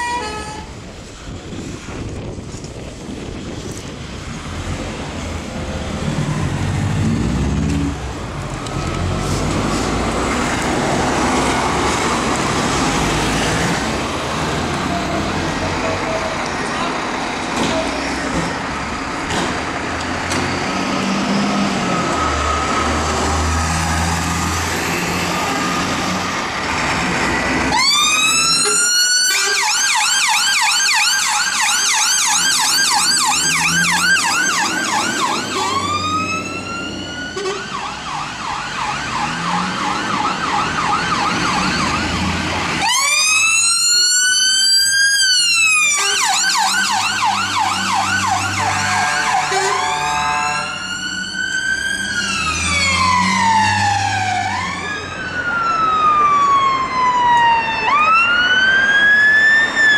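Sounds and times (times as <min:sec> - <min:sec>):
diesel engines running: 0:00.0 - 0:30.3, 0:31.2 - 0:59.9
electronic siren wailing and yelping: 0:27.7 - 0:42.2, 0:42.8 - 0:59.9.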